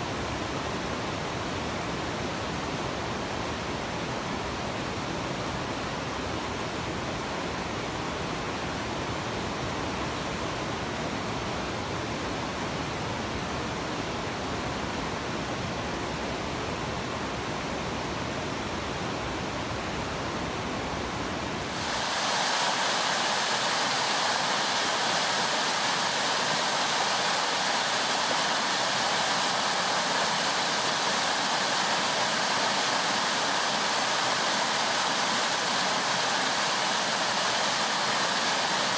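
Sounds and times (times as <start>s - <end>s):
river rapids rushing: 21.4s - 38.9s
water gushing over ledge: 21.7s - 38.9s.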